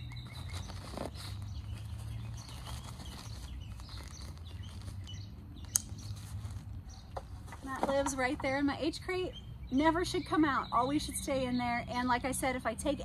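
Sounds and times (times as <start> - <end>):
fabric bag rustling: 0.0 - 5.3
sharp click: 5.7 - 5.9.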